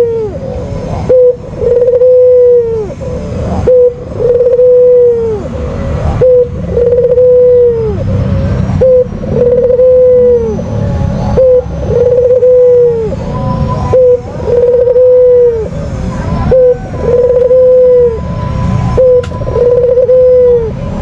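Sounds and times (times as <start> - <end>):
dove cooing: 0.0 - 5.6, 6.2 - 8.0, 8.8 - 10.7, 11.4 - 13.2, 13.8 - 15.8, 16.4 - 18.2, 19.0 - 20.8.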